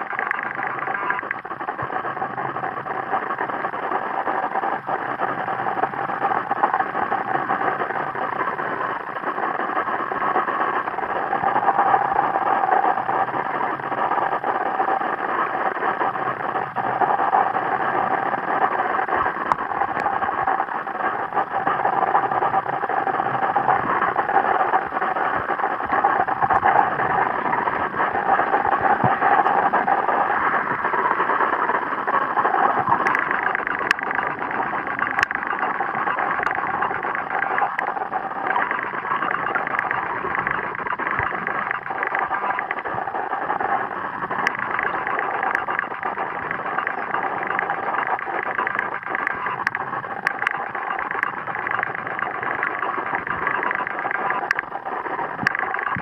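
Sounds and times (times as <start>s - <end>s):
faint hum: 0.0s - 56.0s.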